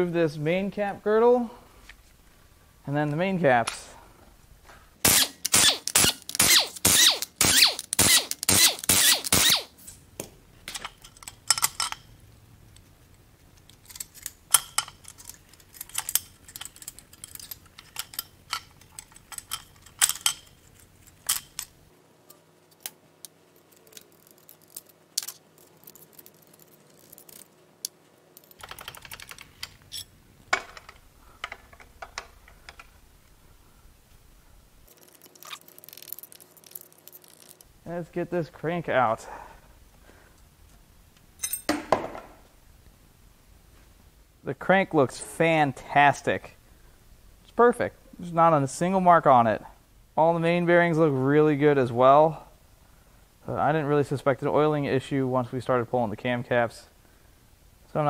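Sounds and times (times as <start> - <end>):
wrench clicking: 5.1 - 9.7, 34.9 - 37.7
metallic clinks and taps: 41.4 - 41.9.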